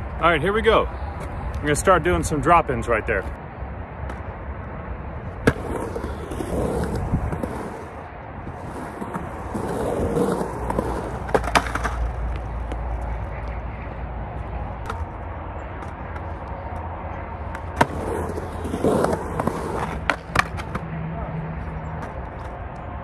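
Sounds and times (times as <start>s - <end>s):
highway traffic rumble: 0.0s - 23.0s
skateboard rolling over concrete: 5.2s - 20.9s
skateboard clacking against ramp: 10.2s - 12.1s, 17.5s - 20.9s.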